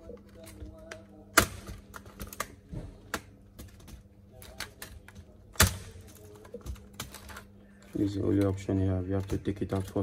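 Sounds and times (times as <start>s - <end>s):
laptop case snapping apart: 1.3s - 4.9s, 5.5s - 7.4s.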